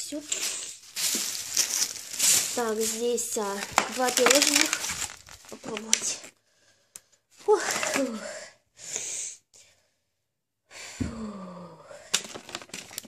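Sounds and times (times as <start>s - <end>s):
plastic container crackling: 0.0s - 6.3s, 7.5s - 8.2s, 12.1s - 13.0s.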